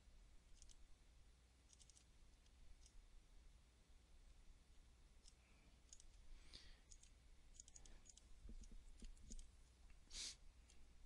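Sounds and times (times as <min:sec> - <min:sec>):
faint computer mouse clicks: 0:00.6 - 0:00.8, 0:05.2 - 0:09.5
short breath-like hiss: 0:10.1 - 0:10.4.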